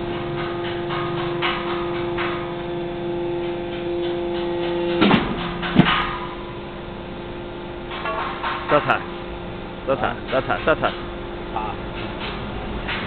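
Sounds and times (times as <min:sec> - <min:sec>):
loud machine knocks: 0:00.0 - 0:02.7, 0:03.4 - 0:06.5
machine humming: 0:00.0 - 0:13.0.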